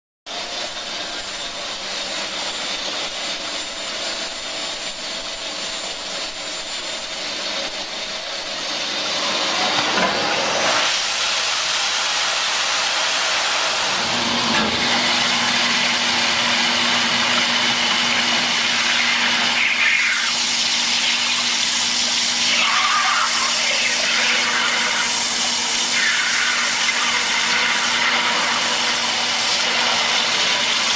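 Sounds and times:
water spray hissing on hot metal: 18.8 - 30.9.

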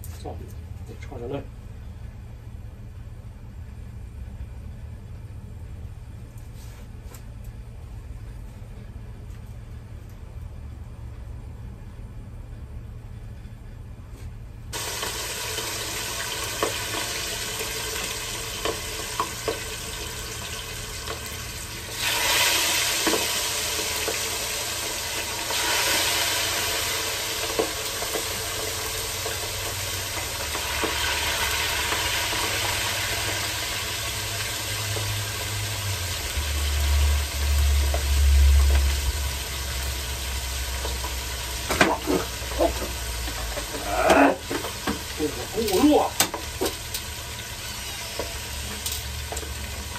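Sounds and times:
fish sizzling in hot oil: 14.8 - 49.9
low rumble: 35.5 - 41.2.

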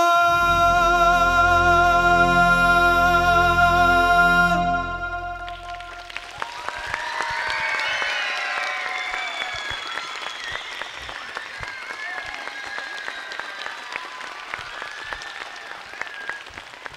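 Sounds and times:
high-pitched cheering: 0.0 - 16.6
audience applauding: 5.3 - 16.9.

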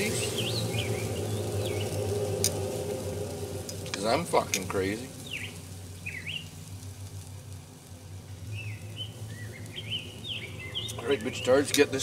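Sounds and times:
small bird chirping: 0.0 - 2.8, 4.6 - 6.6, 8.2 - 12.0
low hum: 0.0 - 12.0.

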